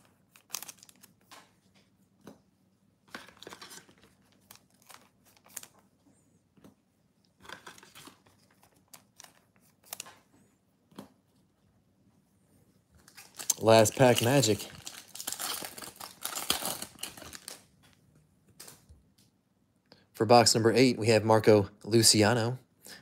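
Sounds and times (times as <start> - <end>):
foil wrapper crinkling and tearing: 0.0 - 1.3, 13.1 - 17.7.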